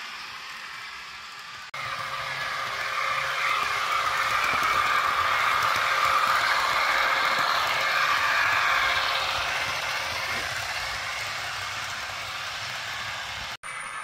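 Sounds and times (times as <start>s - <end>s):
model train running on track: 0.0s - 14.0s.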